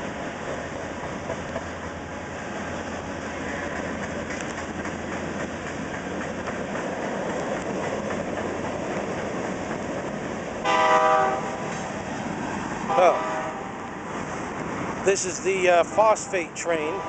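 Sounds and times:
wheels clacking over rails: 0.0s - 10.9s
train rumbling: 0.0s - 17.0s
train horn: 10.6s - 11.9s, 12.9s - 13.8s, 16.0s - 17.0s.

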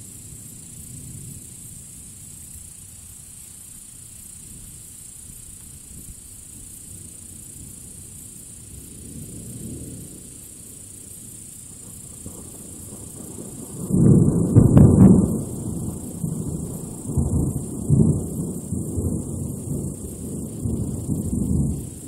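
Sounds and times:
thunder rumbling: 9.0s - 22.0s
thunder crack: 12.4s - 22.0s.

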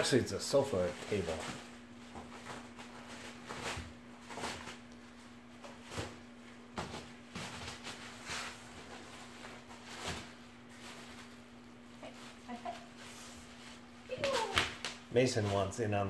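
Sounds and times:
faint steady hum: 0.0s - 16.0s
plastic wrap rustling and crinkling: 0.0s - 16.0s.

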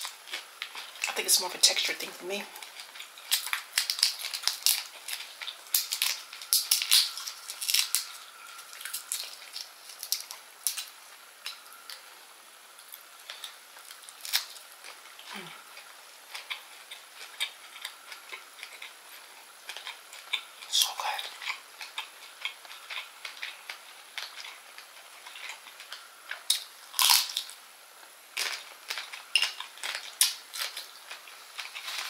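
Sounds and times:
shrimp shell being peeled: 2.6s - 10.9s.

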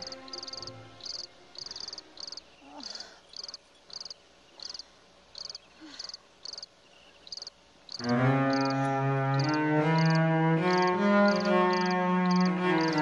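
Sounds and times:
music with long held notes: 0.0s - 2.2s, 8.0s - 13.0s
crickets chirping: 0.0s - 13.0s.

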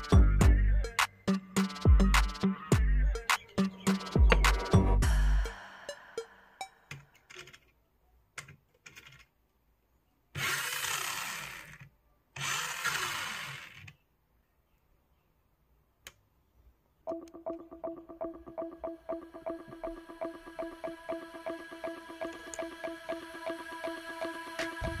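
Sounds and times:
small electric motor whirring: 10.4s - 11.8s, 12.4s - 14.0s.

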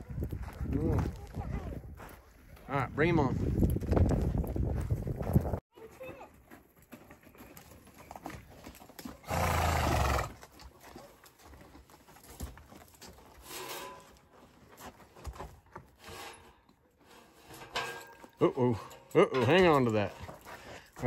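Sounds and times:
faint hoof steps on dirt: 0.0s - 16.9s, 19.7s - 21.0s
horse snorting: 9.1s - 10.4s.

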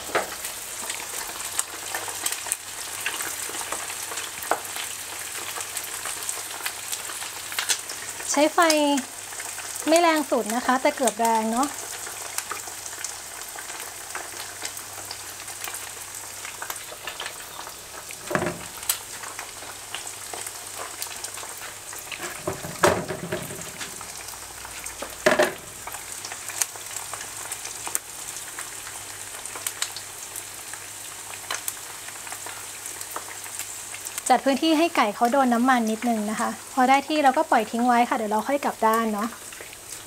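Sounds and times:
oil sizzling and popping: 0.0s - 40.0s
louder thumps: 18.2s - 18.8s, 22.2s - 24.0s.

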